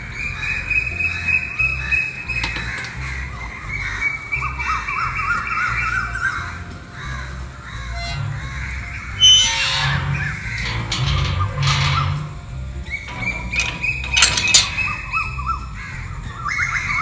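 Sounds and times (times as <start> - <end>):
background music with low bass: 0.0 - 17.0
birds chirping: 0.0 - 17.0
crows cawing: 2.6 - 10.7.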